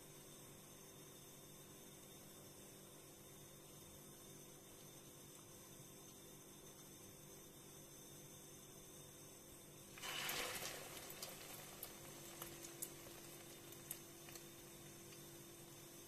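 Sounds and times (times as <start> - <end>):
food sizzling in hot oil: 9.9 - 16.0
frying oil popping and spitting: 9.9 - 16.0.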